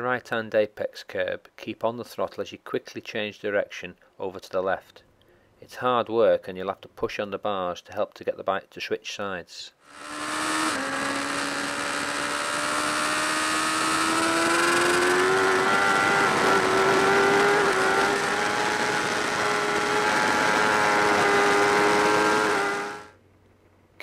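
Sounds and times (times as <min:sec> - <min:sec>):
motorcycle engine at high revs: 0:09.8 - 0:23.2.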